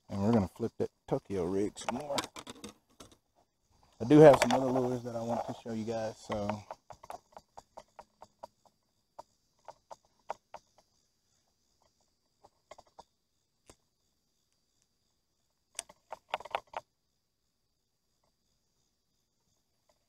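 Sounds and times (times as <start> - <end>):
sharp clicks and knocks: 1.7 - 3.2, 4.0 - 11.0, 15.7 - 16.9.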